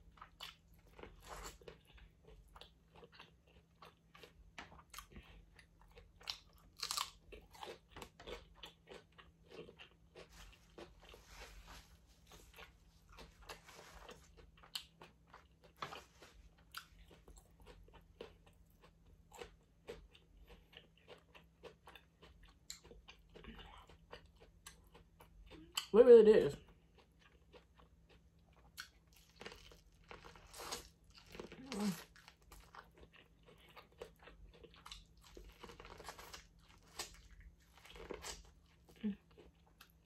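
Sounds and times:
crunchy bites and chewing: 0.0 - 11.2, 26.9 - 40.0.

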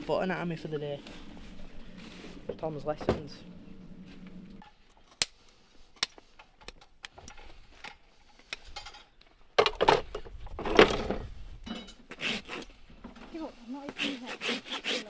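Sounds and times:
rasp filing hoof: 13.9 - 15.0.

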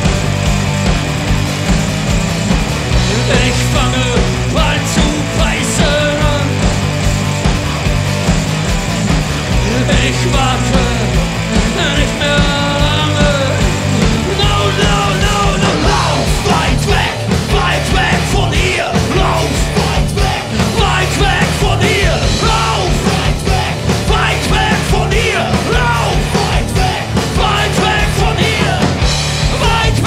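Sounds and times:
bass guitar: 0.0 - 30.0
electric guitar: 0.0 - 30.0
man singing into microphone: 3.1 - 6.6, 9.6 - 30.0.

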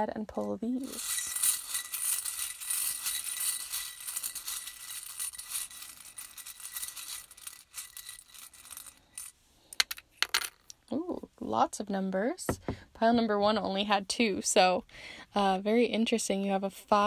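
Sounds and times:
small charms rattling and clicking: 0.8 - 10.7.

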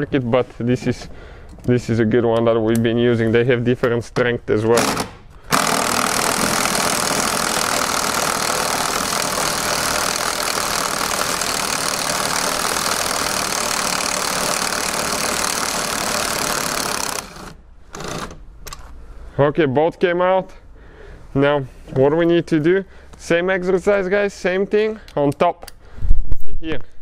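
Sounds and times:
impact wrench hammering: 4.7 - 18.4.

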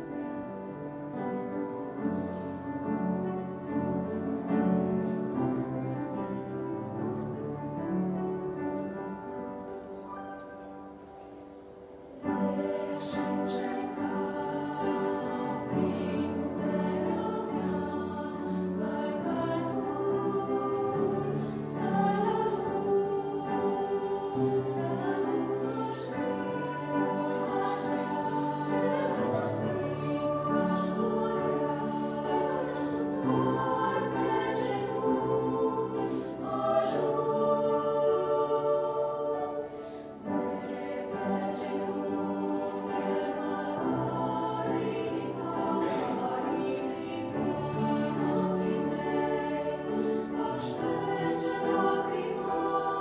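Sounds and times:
upright piano: 0.0 - 53.0
women's voices singing: 12.1 - 53.0.

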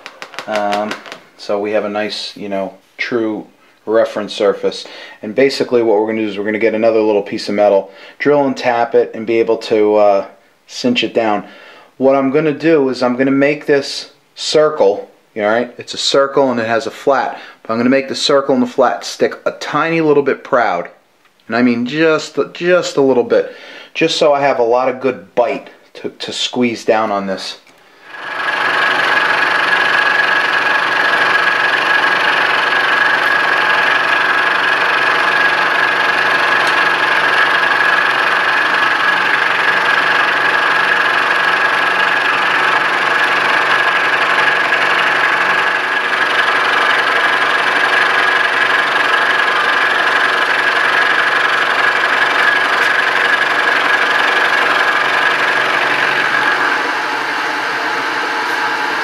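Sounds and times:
milling machine cutting metal: 28.0 - 59.0
spindle running: 28.0 - 59.0.

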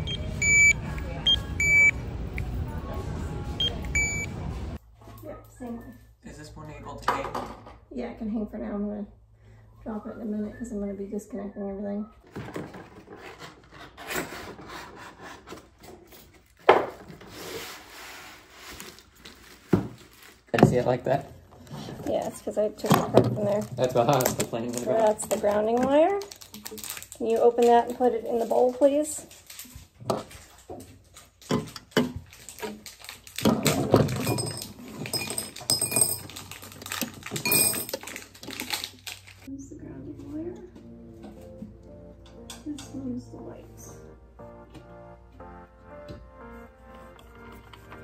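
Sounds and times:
cardboard scraping and rubbing: 12.7 - 16.2, 17.1 - 20.4.

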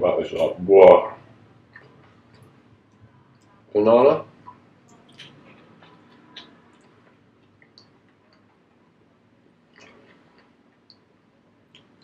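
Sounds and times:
person chewing food: 1.6 - 3.6, 4.4 - 8.9, 9.6 - 12.0
wet mouth clicks: 1.7 - 3.6, 4.4 - 8.5, 9.7 - 11.1.

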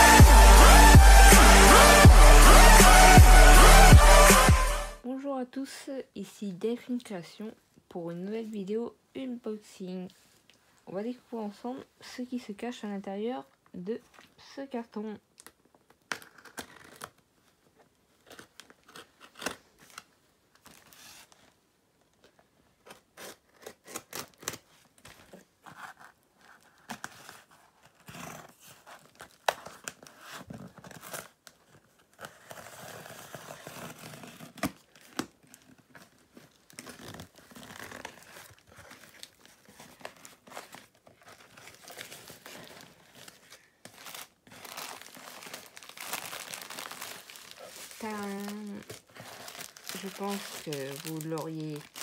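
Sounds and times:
tape tearing on cardboard: 22.8 - 24.9, 32.1 - 52.0
plastic wrapping crinkling: 23.5 - 52.0.

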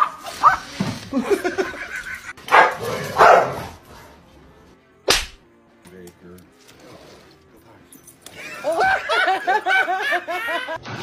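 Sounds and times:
dog yipping barks: 0.0 - 0.6, 2.5 - 3.7.

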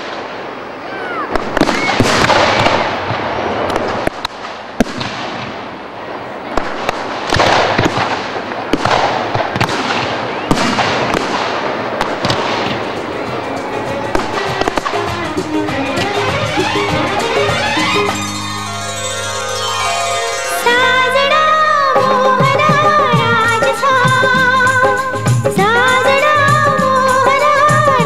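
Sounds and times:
firecrackers crackling and banging: 1.3 - 20.5
music: 12.4 - 28.0.

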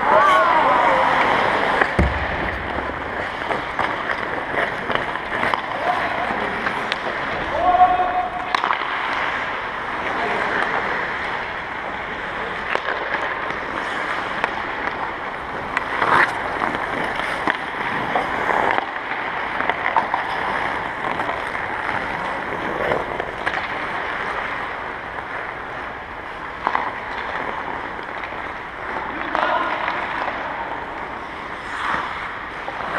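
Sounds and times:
skates scraping ice: 0.0 - 32.9
sticks clacking on pucks: 0.1 - 7.5, 8.3 - 11.2, 12.4 - 32.9.

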